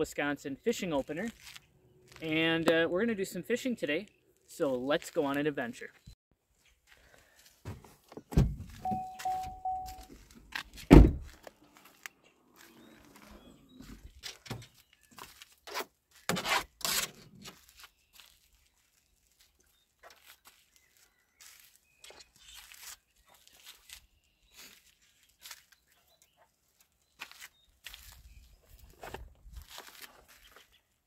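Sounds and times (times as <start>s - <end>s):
heavy car door closing thunk: 8.3s - 8.7s, 10.9s - 11.3s
short electronic beeps: 8.8s - 10.1s.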